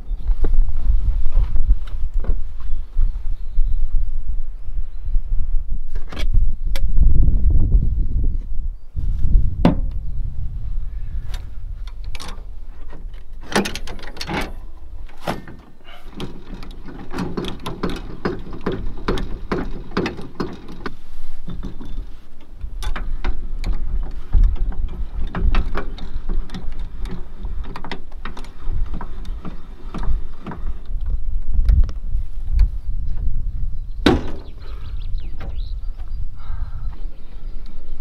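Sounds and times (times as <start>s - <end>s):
wind rumble on microphone: 0.0s - 38.0s
trailer hitch clicks and clunks: 11.3s - 31.9s, 34.0s - 34.7s.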